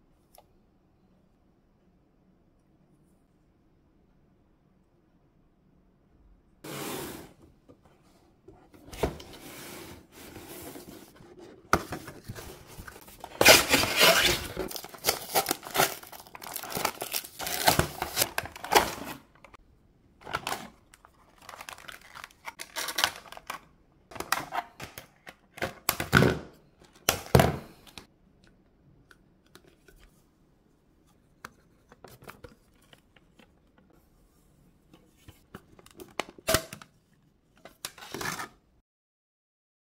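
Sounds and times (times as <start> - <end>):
cardboard and plastic tearing: 11.9 - 19.3, 20.2 - 23.6.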